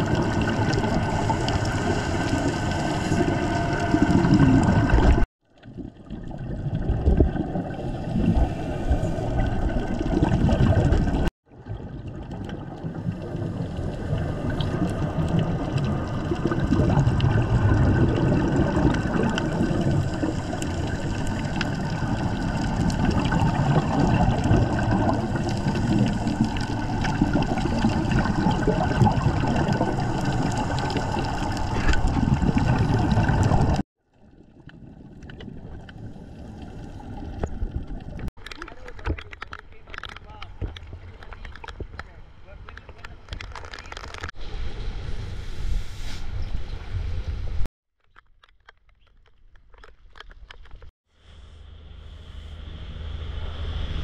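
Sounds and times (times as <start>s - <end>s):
muffled underwater rushing water: 0.0s - 39.5s.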